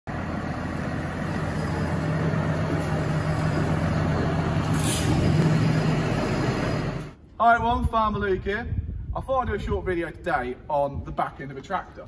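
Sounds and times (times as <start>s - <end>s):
tractor engine idling: 0.1s - 7.2s.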